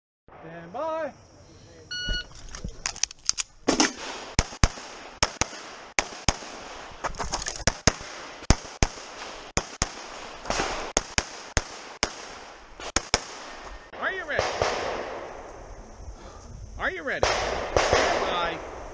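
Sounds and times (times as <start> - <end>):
pistol shots: 3.6 - 6.8, 7.6 - 15.3, 17.2 - 18.8.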